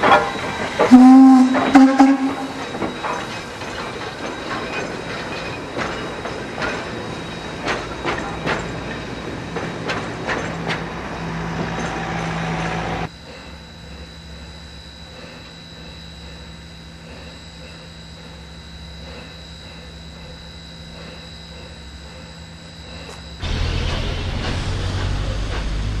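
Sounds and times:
train wheels clicking over rail joints: 0.0s - 12.8s
loud steam whistle blast: 0.9s - 2.6s
steady low rumble: 23.4s - 26.0s.

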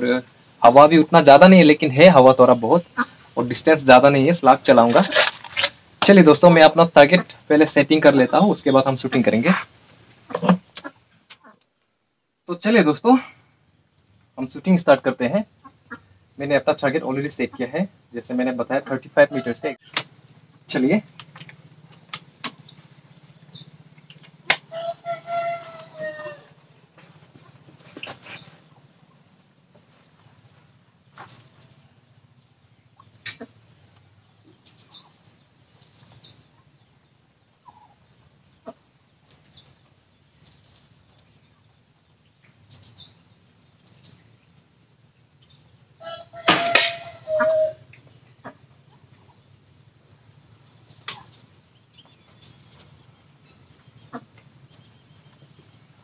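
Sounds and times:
air rifle shot: 46.5s - 47.1s.

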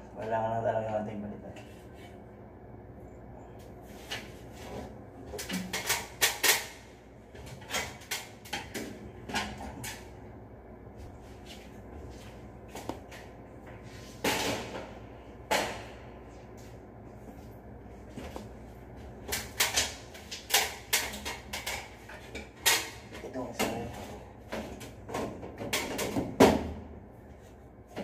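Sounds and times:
low hum: 0.0s - 5.5s.

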